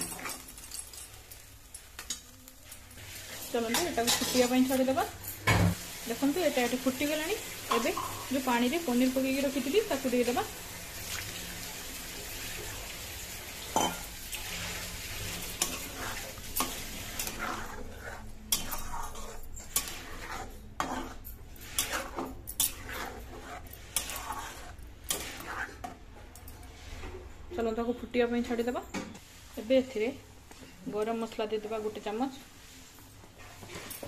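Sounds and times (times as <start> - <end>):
gravy sizzling in a pan: 0.0 - 25.9
spatula scraping metal pan: 13.8 - 26.1.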